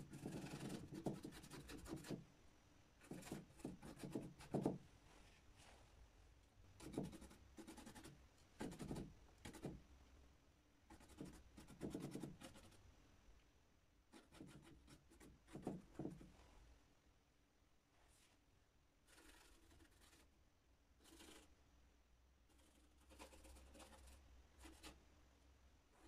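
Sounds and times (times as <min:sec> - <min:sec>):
paintbrush scratchy strokes: 0:19.0 - 0:20.3, 0:21.0 - 0:21.5, 0:22.5 - 0:25.0.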